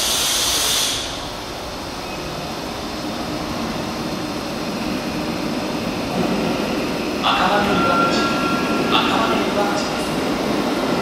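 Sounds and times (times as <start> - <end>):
train brake hiss: 0.0 - 1.4
train rumbling to a stop: 0.0 - 11.0.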